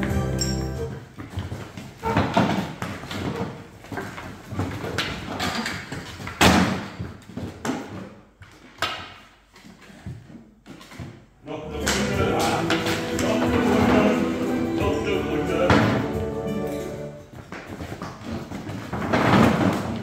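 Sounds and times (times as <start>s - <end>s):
wooden chairs scraping on tiles: 11.7s - 20.0s.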